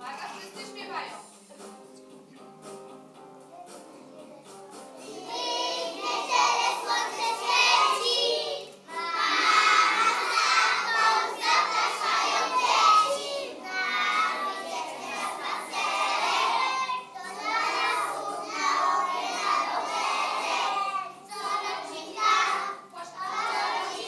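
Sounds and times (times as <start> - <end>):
children singing in unison: 5.0 - 24.0.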